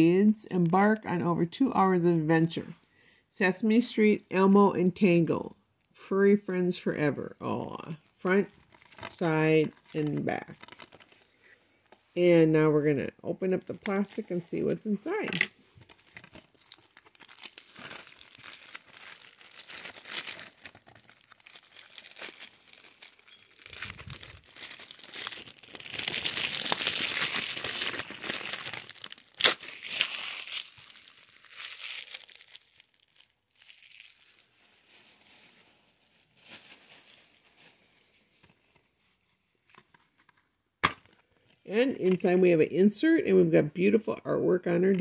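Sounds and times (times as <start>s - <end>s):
plastic shrink wrap tearing: 8.2s - 11.3s, 13.6s - 38.1s.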